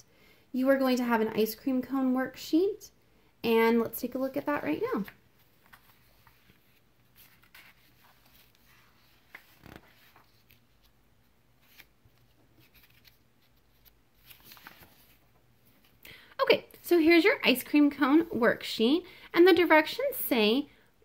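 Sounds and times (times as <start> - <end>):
paper shuffling on a desk: 4.8 - 11.0, 11.6 - 16.0.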